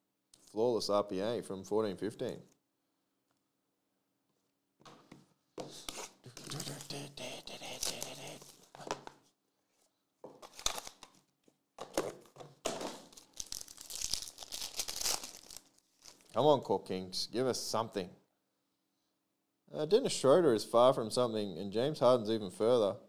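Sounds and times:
plastic wrapper tearing and crinkling: 10.4s - 11.3s, 13.0s - 16.4s.

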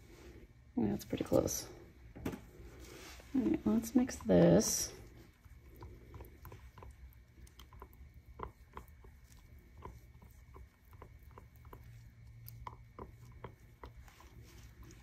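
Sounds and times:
spatula tapping and scraping cup: 5.7s - 15.0s.

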